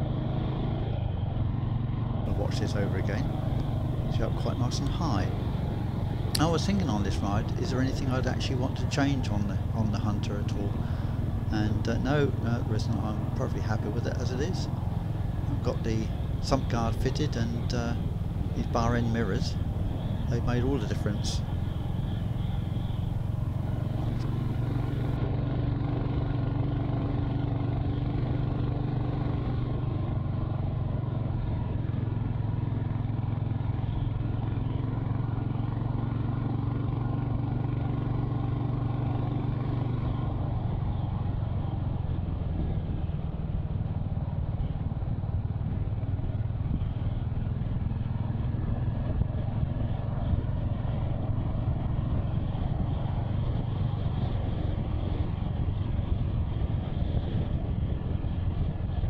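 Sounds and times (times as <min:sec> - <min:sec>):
motorcycle engine running: 0:00.0 - 0:59.0
wind noise: 0:45.1 - 0:59.0.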